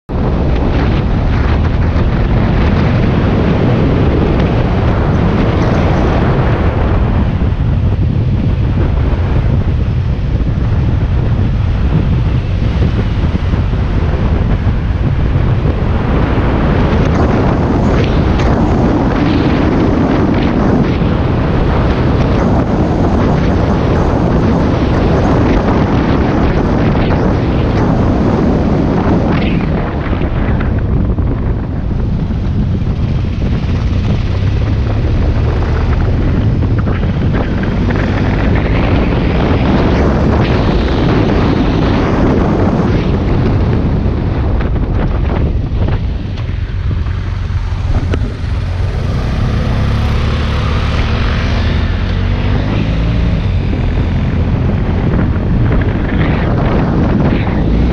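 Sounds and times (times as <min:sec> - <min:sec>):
wind buffeting microphone: 0:00.0 - 0:57.9
motorcycle engine: 0:00.1 - 0:28.0, 0:29.9 - 0:57.9
road noise: 0:00.1 - 0:57.9.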